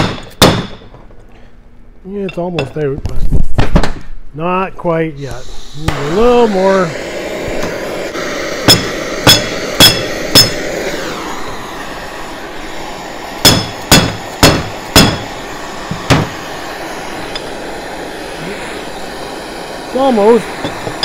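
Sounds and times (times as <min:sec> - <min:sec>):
sharp ringing metal knocks: 0:00.0 - 0:01.0, 0:08.7 - 0:10.6, 0:13.4 - 0:15.3
gas torch flame hissing: 0:05.2 - 0:21.0.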